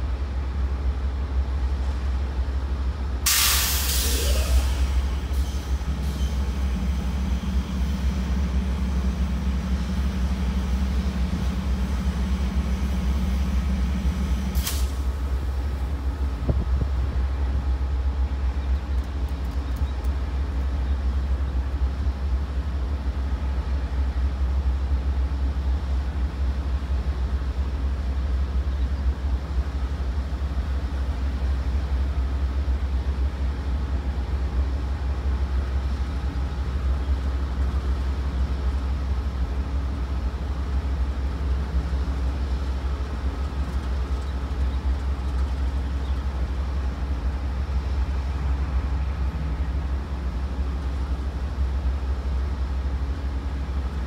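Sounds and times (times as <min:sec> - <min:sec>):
diesel locomotive idling: 0:00.0 - 0:54.0
sharp hiss: 0:03.3 - 0:06.5, 0:14.4 - 0:15.1.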